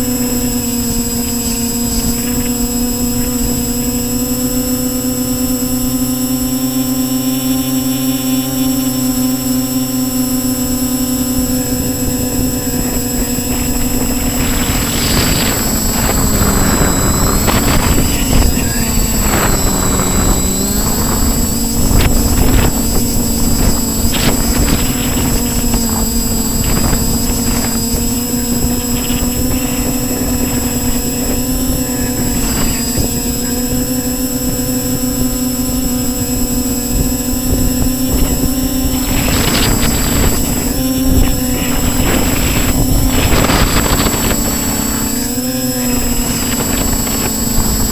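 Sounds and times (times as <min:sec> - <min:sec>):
drone motors whining: 0:00.0 - 0:47.9
wind rushing: 0:11.4 - 0:33.8.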